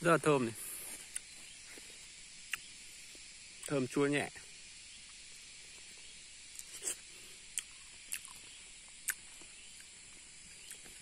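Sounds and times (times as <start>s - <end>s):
steady high hiss: 0.0s - 11.0s
person chewing strawberry: 1.0s - 1.5s, 2.4s - 2.7s, 6.5s - 11.0s.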